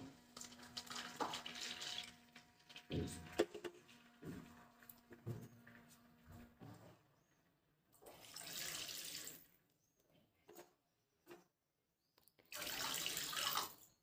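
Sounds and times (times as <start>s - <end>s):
water pouring into a pan: 0.3s - 3.0s, 8.1s - 9.5s, 12.5s - 13.8s.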